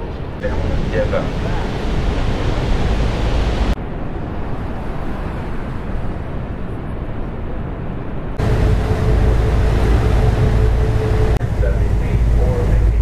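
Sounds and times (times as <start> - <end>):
waterfall roaring: 8.4 - 11.8
low hum: 8.4 - 13.0.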